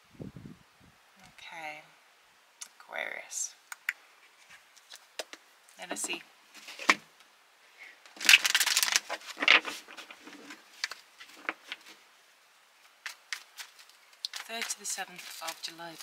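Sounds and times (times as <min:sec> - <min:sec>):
cards being shuffled: 0:08.1 - 0:12.0, 0:12.9 - 0:16.0.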